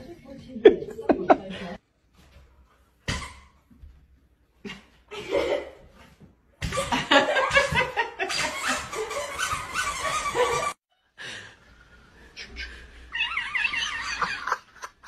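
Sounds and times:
people laughing: 0:00.6 - 0:01.8, 0:06.7 - 0:09.3, 0:12.4 - 0:15.0.

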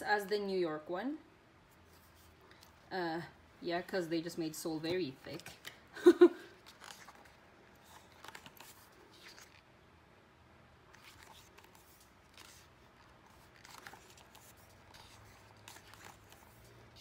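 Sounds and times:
book pages being turned: 0:01.7 - 0:02.9, 0:04.8 - 0:05.8, 0:06.5 - 0:09.7, 0:10.9 - 0:17.0.

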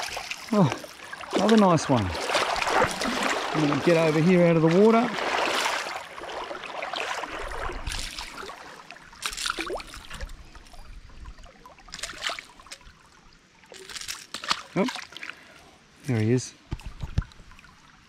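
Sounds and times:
water splashing from wading: 0:00.0 - 0:15.5.

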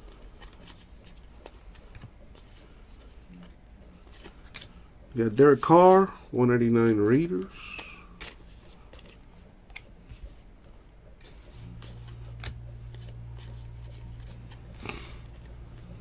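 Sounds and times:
steady low hum: 0:00.0 - 0:16.0
trading cards flicking: 0:06.6 - 0:10.2, 0:11.2 - 0:16.0.

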